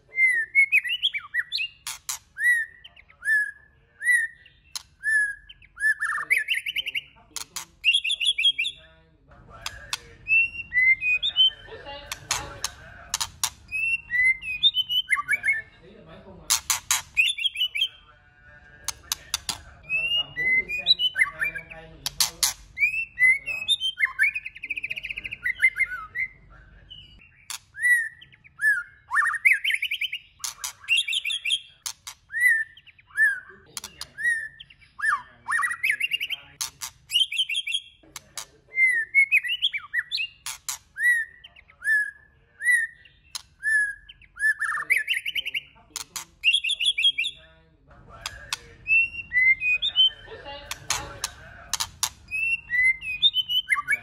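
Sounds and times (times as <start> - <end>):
bird singing whistled phrases: 0.0 - 7.2, 7.8 - 8.8, 9.8 - 11.7, 13.7 - 15.7, 17.2 - 18.0, 19.1 - 21.8, 22.4 - 36.5, 37.1 - 38.0, 38.7 - 40.4, 41.0 - 45.8, 46.4 - 47.4, 48.5 - 50.3, 52.3 - 54.0
sharp bird clicks: 0.7 - 3.1, 4.4 - 8.8, 9.6 - 15.3, 16.5 - 17.9, 18.8 - 20.2, 20.8 - 26.0, 27.2 - 33.0, 33.7 - 38.5, 39.3 - 41.7, 43.2 - 47.4, 48.2 - 54.0.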